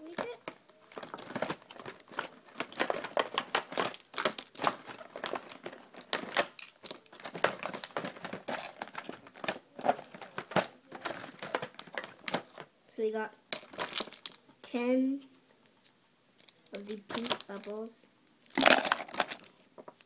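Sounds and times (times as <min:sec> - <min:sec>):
packaging crackling: 0:00.1 - 0:12.6, 0:13.5 - 0:14.4, 0:18.5 - 0:19.6.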